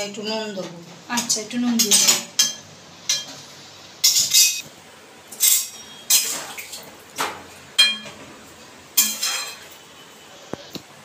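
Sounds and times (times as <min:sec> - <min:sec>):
ladle clinking on metal pan: 0:04.0 - 0:04.6, 0:07.8 - 0:08.2, 0:09.0 - 0:09.8.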